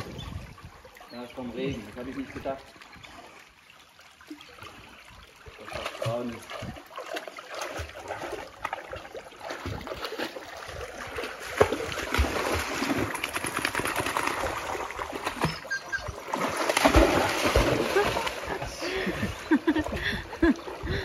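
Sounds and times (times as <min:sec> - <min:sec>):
dogs splashing through water: 0:04.2 - 0:21.0.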